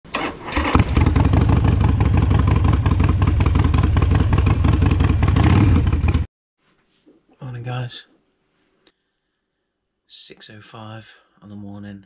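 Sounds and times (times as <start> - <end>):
motorcycle engine running: 0.8 - 6.3.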